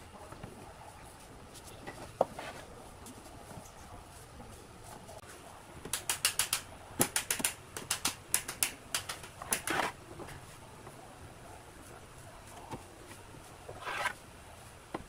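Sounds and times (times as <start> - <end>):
wooden slat scraping: 9.4 - 10.0, 13.7 - 14.2.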